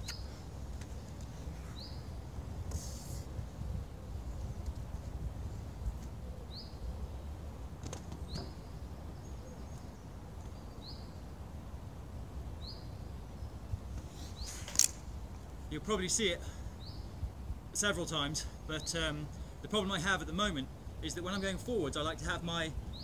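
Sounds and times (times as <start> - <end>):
bird chirping: 0.0 - 0.5, 1.1 - 4.6, 6.2 - 7.4, 8.1 - 11.5, 12.6 - 14.9, 16.8 - 17.2
low outdoor rumble: 0.0 - 23.0.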